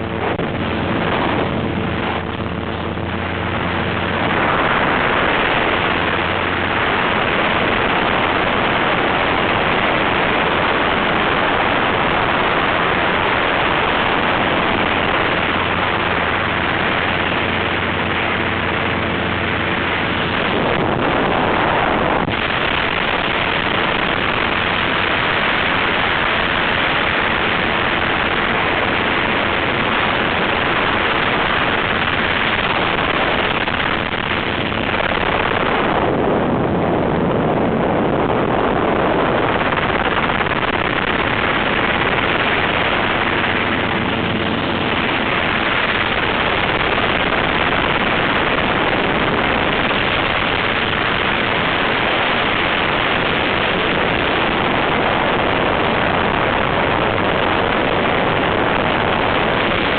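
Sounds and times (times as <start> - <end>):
helicopter rotor and engine drone: 0.0 - 59.9
wind rushing over microphone: 0.0 - 59.9.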